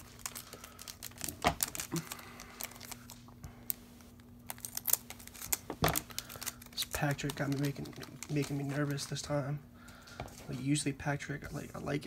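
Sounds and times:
cards being handled: 0:00.0 - 0:09.2
foil wrapper crinkling: 0:00.0 - 0:09.4.

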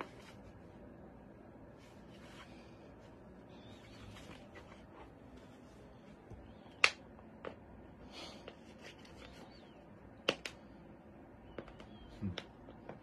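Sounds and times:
faint room noise: 0:00.0 - 0:13.0.

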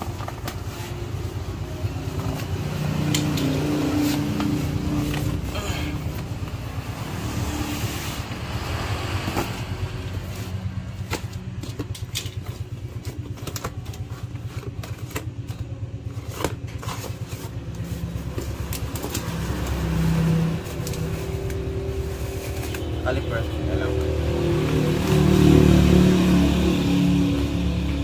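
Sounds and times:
cardboard boxes clicking and tapping: 0:00.0 - 0:06.8, 0:08.7 - 0:20.0
low engine rumble: 0:00.0 - 0:28.0.

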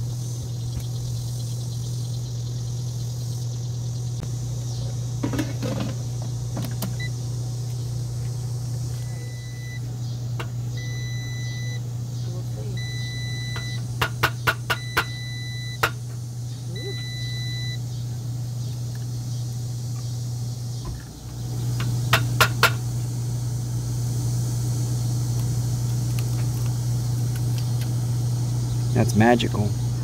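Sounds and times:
low hum: 0:00.0 - 0:28.9
appliance beeping: 0:05.2 - 0:07.7, 0:08.8 - 0:18.6.

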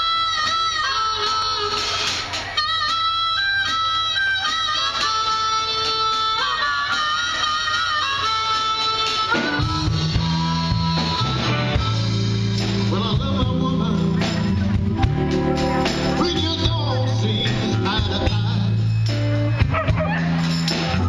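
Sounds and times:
blues-rock band playing: 0:00.0 - 0:21.0.

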